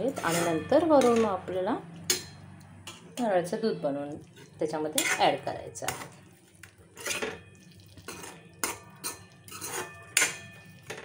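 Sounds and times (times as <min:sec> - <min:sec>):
metal spoon scraping a pan: 0:00.0 - 0:01.4, 0:04.2 - 0:11.0.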